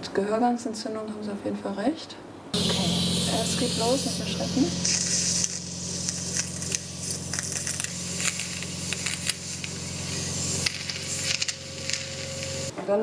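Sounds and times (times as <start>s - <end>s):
low steady hum: 2.6s - 12.7s
suction hiss with crackles: 2.6s - 12.7s.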